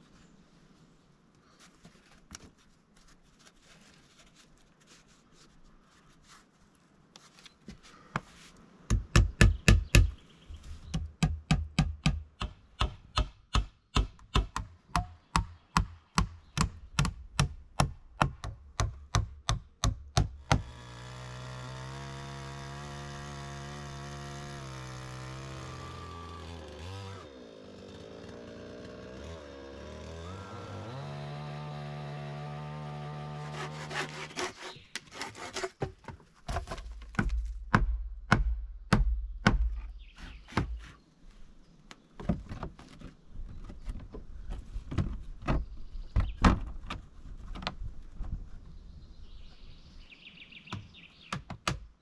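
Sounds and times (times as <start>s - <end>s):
moss scratching between logs: 1.5s - 8.7s, 32.4s - 37.2s
chainsaw engine running: 20.6s - 34.2s.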